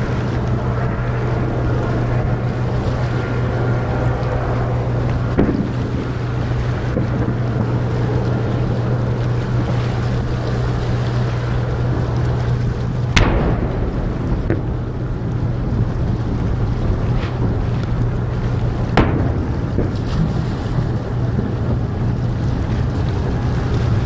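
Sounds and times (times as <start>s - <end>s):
faint firework crack: 0.0s - 24.0s
low hum: 0.0s - 24.0s
wind noise: 0.0s - 24.0s
firework boom: 5.0s - 8.1s, 13.0s - 21.9s.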